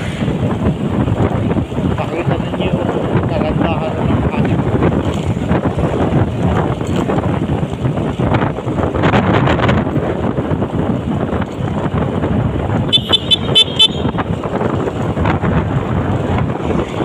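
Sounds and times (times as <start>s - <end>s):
wind rushing over microphone: 0.0s - 17.0s
short high-pitched horn beeps: 12.9s - 14.1s.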